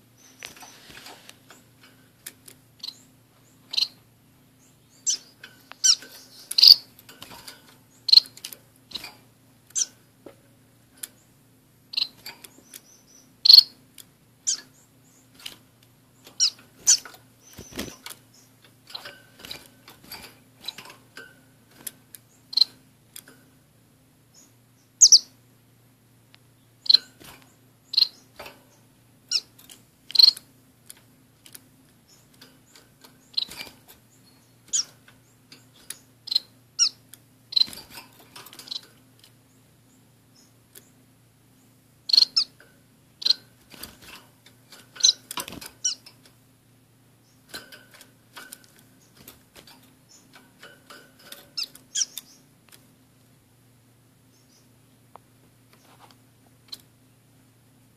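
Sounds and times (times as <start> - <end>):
finches chirping: 0.0 - 1.8, 2.8 - 7.0, 7.6 - 10.1, 11.1 - 13.8, 14.4 - 15.4, 16.1 - 21.2, 22.2 - 22.8, 24.3 - 25.4, 26.6 - 30.5, 32.0 - 44.1, 44.8 - 46.1, 48.4 - 50.4, 51.4 - 52.5, 54.3 - 54.8.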